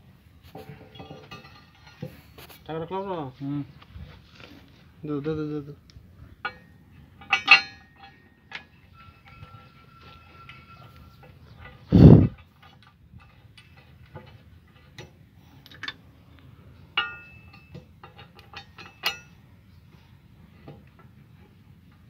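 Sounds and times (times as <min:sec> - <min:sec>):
metal clinks and taps: 0:00.6 - 0:02.3, 0:06.4 - 0:11.8, 0:16.9 - 0:19.4.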